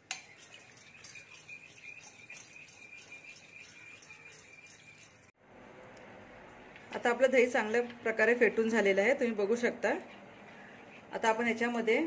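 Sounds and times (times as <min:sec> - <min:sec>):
metal spoon clinking in bowl: 0:00.0 - 0:05.3.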